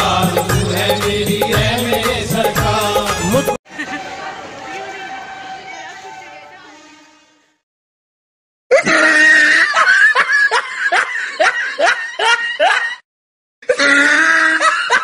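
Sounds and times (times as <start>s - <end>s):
person laughing: 8.7s - 13.0s, 13.6s - 15.0s.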